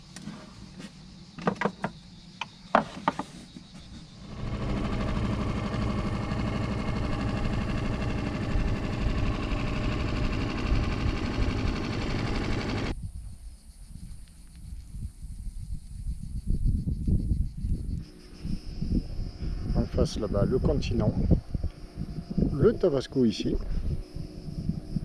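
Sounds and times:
boat motor running: 4.2s - 12.9s.

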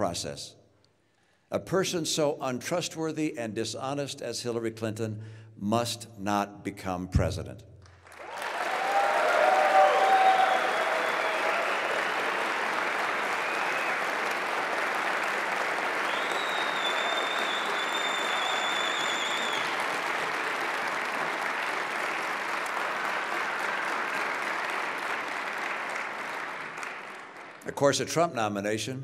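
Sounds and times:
audience applauding: 8.0s - 27.7s.

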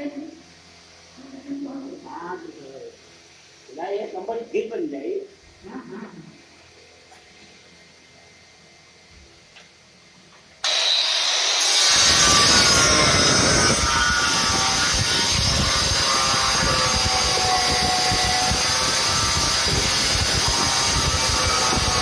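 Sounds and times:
tile cutter motor whine: 10.6s - 22.0s
blade grinding through tile: 10.7s - 22.0s.

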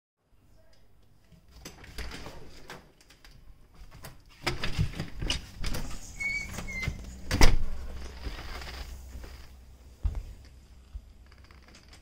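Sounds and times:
short high squeaks: 5.9s - 7.2s
footsteps on wooden deck: 7.8s - 11.2s.

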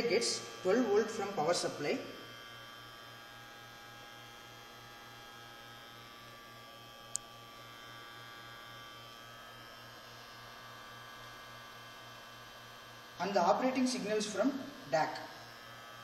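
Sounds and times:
high whining electrical tones: 0.0s - 6.5s
low pulsing buzz: 0.0s - 16.0s.

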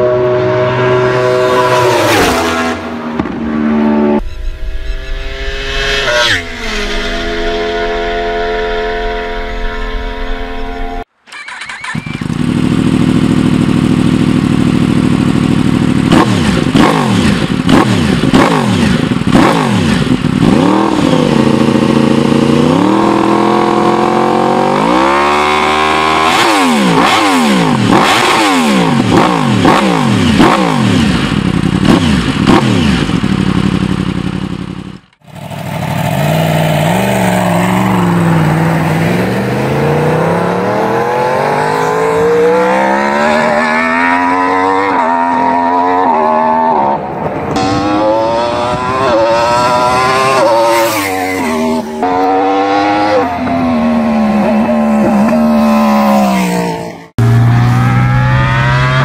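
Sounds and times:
motorcycle approaching on road: 0.0s - 9.4s, 10.1s - 59.0s
motorcycle engine revving: 0.0s - 59.0s.

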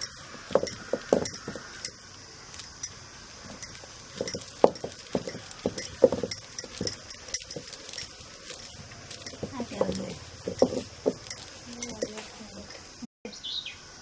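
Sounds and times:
stone pestle pounding in mortar: 0.0s - 2.0s, 3.6s - 7.9s, 8.6s - 12.2s
bangles clinking: 0.0s - 13.0s.

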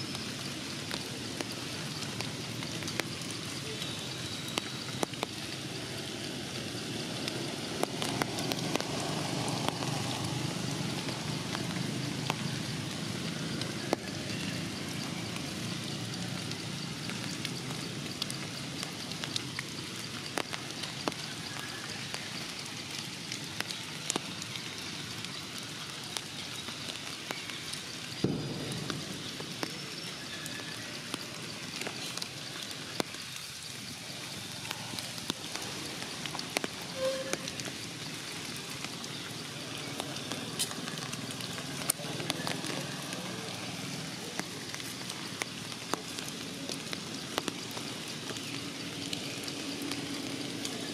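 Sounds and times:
rain pattering on leaves: 0.0s - 50.9s.

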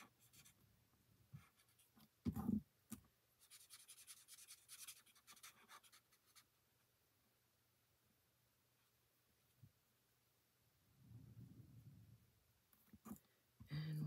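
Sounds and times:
marker scratching on cardstock: 3.4s - 6.5s.

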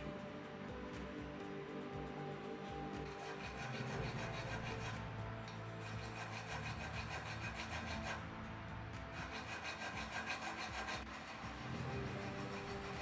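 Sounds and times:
wooden stick scraping vase rim: 3.0s - 5.0s, 9.2s - 13.0s.

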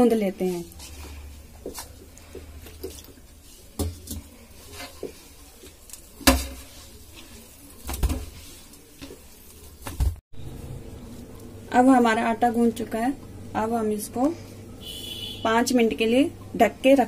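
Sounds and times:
dough kneading by hand: 0.0s - 10.2s.

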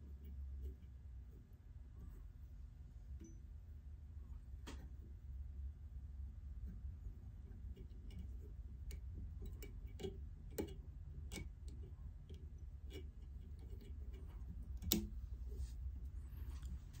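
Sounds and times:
low steady hum: 0.0s - 17.0s
small clicks of hand work: 7.8s - 15.2s.

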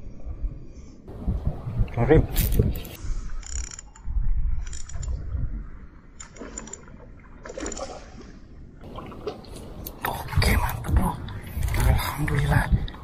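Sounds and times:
wind rumble on microphone: 0.0s - 6.0s, 8.8s - 13.0s
fishing reel clicking and whirring: 3.4s - 4.0s, 4.6s - 5.1s.

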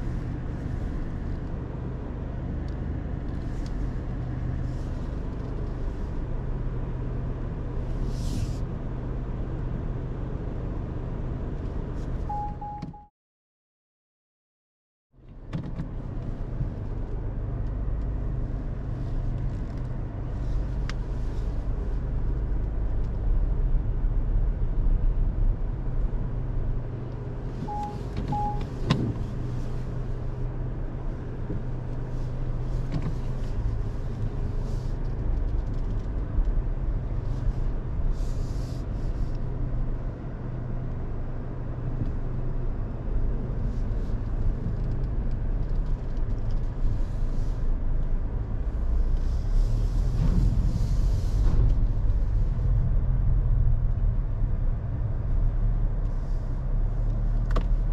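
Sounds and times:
short beeps: 12.3s - 13.1s, 27.6s - 28.8s
car engine running: 15.2s - 57.9s.

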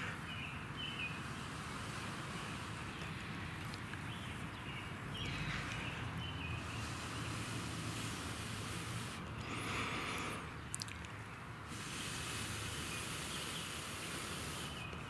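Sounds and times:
faint outdoor hiss: 0.0s - 15.0s
small birds chirping: 0.0s - 15.0s.

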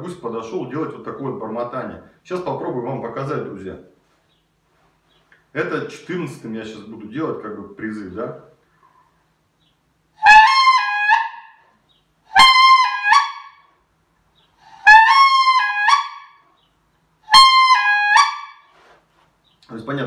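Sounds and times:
wooden goose call honks: 10.2s - 11.6s, 12.3s - 13.7s, 14.7s - 16.4s, 17.3s - 18.7s.

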